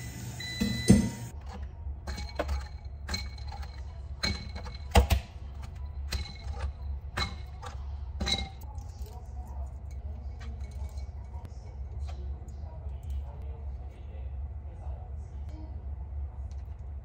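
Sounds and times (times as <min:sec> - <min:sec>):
low steady hum: 0:00.0 - 0:17.0
metal tongs clinking on glass bowl: 0:02.1 - 0:11.5.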